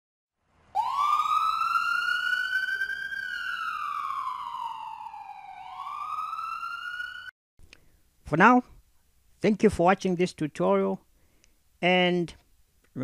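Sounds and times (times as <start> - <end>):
ambulance siren wailing: 0.7 - 7.3.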